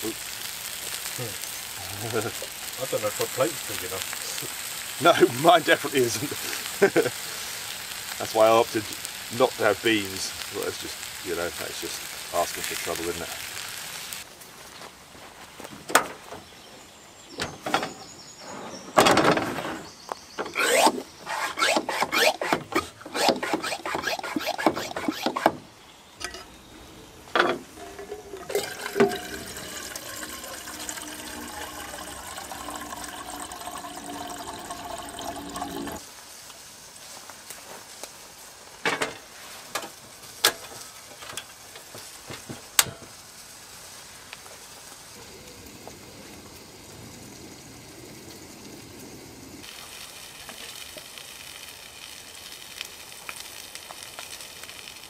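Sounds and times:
water running into kettle: 27.6s - 36.0s.

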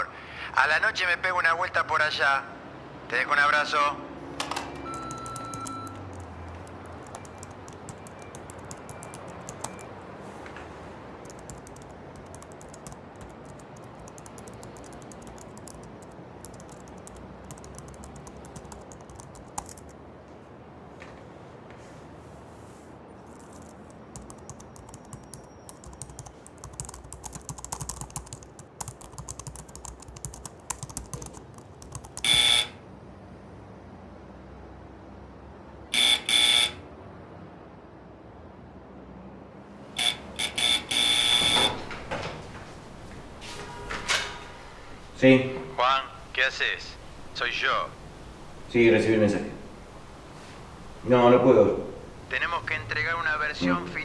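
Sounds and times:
laptop keyboard clicks: 4.4s - 9.9s, 11.2s - 20.0s, 23.3s - 32.6s.

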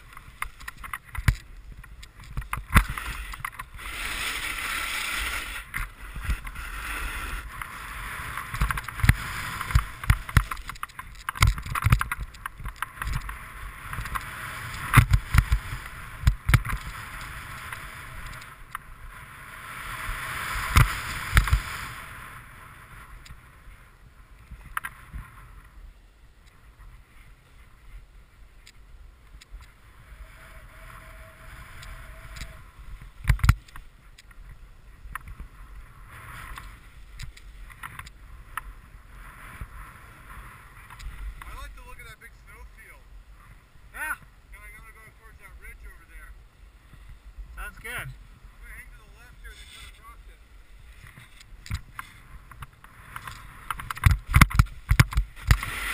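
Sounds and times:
snowboard scraping over snow: 0.0s - 25.7s, 29.8s - 55.9s
snowboard thumps on bumpy snow: 8.2s - 17.8s, 20.2s - 22.0s.

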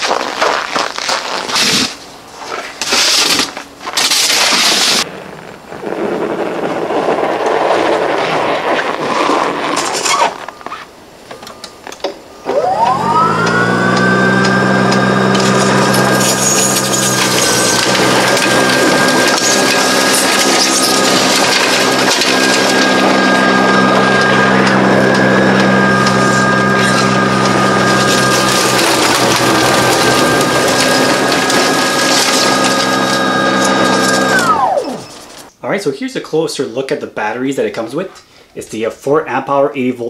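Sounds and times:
crunching noise: 0.0s - 35.5s
snow blower motor whine: 12.4s - 35.5s.

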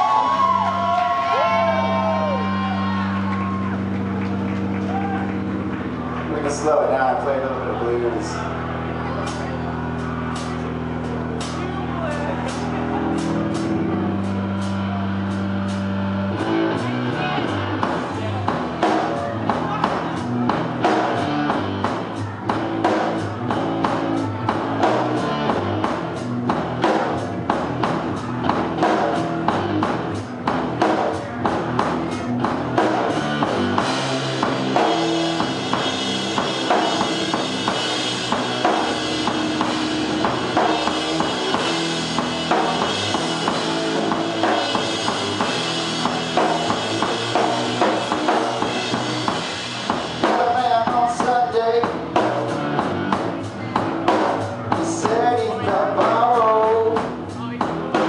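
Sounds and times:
drum kit: 0.0s - 58.0s
electric guitar through amplifier: 0.0s - 58.0s.

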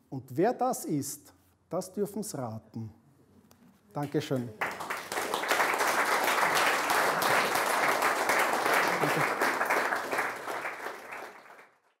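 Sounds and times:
audience applause: 4.6s - 12.0s.

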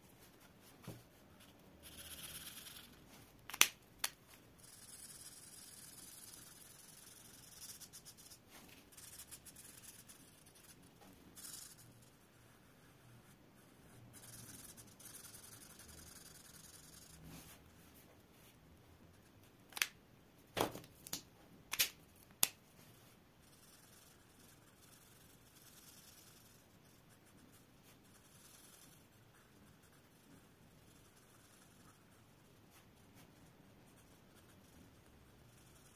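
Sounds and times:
marker scratching on paper: 0.1s - 3.3s, 4.3s - 19.9s, 22.8s - 35.9s
marker caps clicking: 3.5s - 4.2s, 19.7s - 20.0s, 20.8s - 22.6s.

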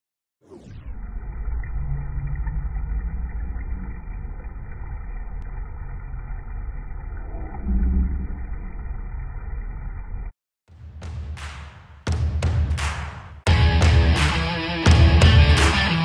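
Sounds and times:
water bubbling in tub: 0.9s - 10.1s.

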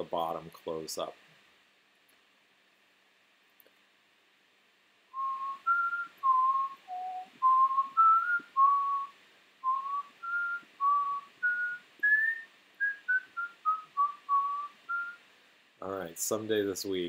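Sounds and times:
person whistling: 5.2s - 15.2s.

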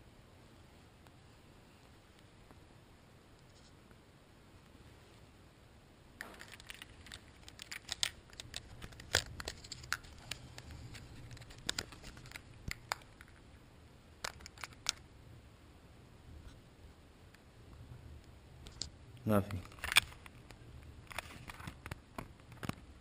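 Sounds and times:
plastic handling clicks and rustles: 6.2s - 13.4s, 14.2s - 15.0s, 18.7s - 22.9s.

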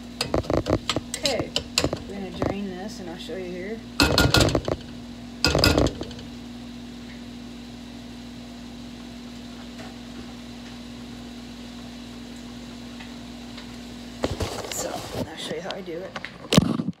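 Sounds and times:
low hum with light hiss: 0.0s - 17.0s
spatula clattering on skillet: 0.2s - 2.1s, 4.0s - 4.9s, 5.5s - 6.3s.

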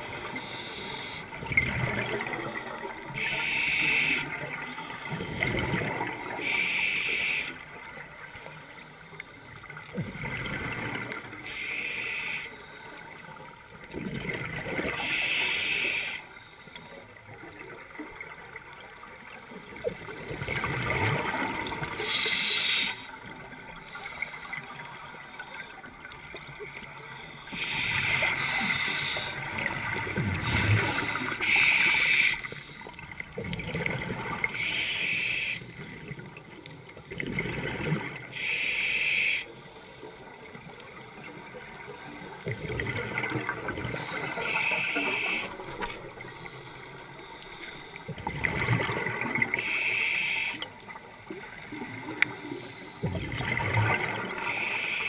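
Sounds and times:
regulator hissing breaths: 0.0s - 1.3s, 3.1s - 5.4s, 6.4s - 7.6s, 11.4s - 12.8s, 15.0s - 16.7s, 22.0s - 23.2s, 27.2s - 29.6s, 30.4s - 33.0s, 34.6s - 35.8s, 38.4s - 40.0s, 44.1s - 48.1s, 49.6s - 50.7s, 54.4s - 55.0s
gurgling exhaled bubbles: 20.0s - 22.0s, 37.0s - 38.3s, 42.4s - 44.6s, 48.1s - 49.6s, 53.0s - 54.6s.

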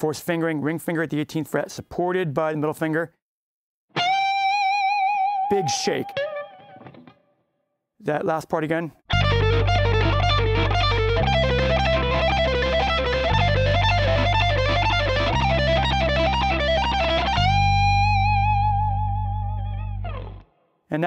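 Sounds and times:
overdriven electric guitar lead: 4.0s - 7.2s, 9.1s - 20.5s
backing chord vamp: 9.1s - 20.5s.

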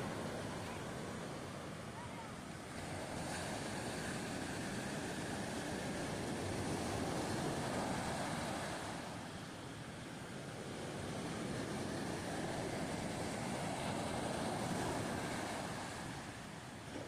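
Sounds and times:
surf washing up a beach: 0.0s - 17.0s.

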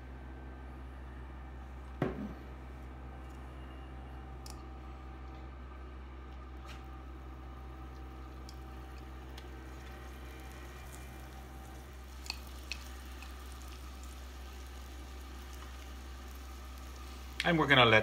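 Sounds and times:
electric grill humming: 0.0s - 18.0s
food ticking and popping in oil: 7.7s - 18.0s.

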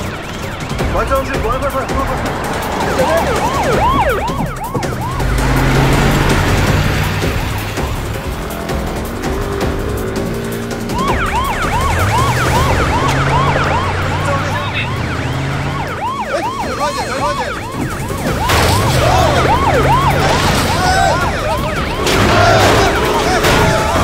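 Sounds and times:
emergency siren yelping: 0.0s - 24.0s
low drone of vehicle engines: 4.8s - 16.6s.

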